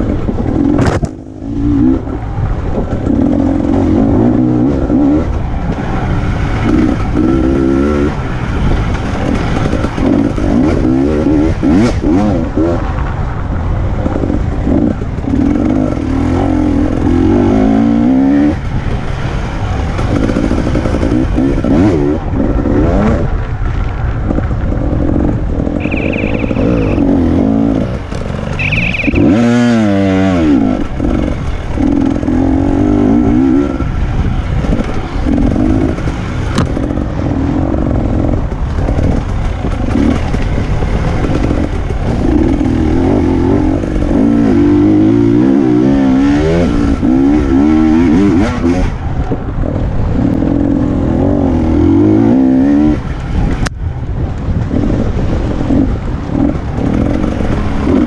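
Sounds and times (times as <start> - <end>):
motorcycle engine revving: 0.0 - 58.0
high-pitched tones: 25.8 - 27.4, 28.5 - 29.7.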